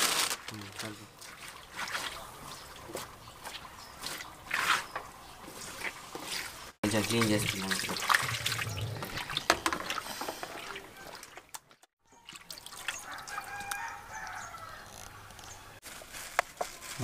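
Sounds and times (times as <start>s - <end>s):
water splashing on fish: 1.1s - 4.9s, 5.8s - 13.9s
wet slaps and drips: 1.2s - 5.1s, 7.1s - 14.4s.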